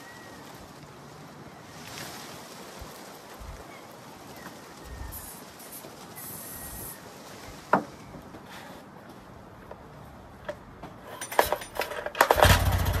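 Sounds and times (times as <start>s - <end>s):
aerosol spray hisses: 5.1s - 7.0s.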